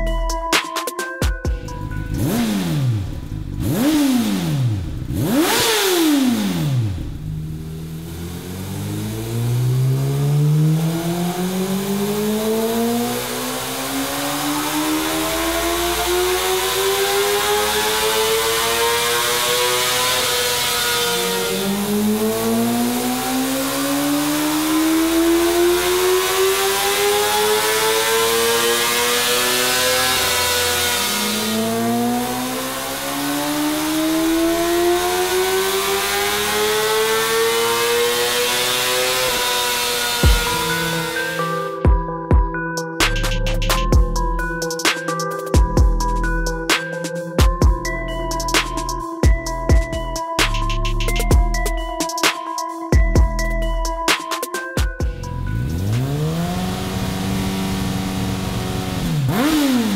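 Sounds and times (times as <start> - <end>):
motorcycle engine revving: 1.7 - 42.0, 55.0 - 59.9.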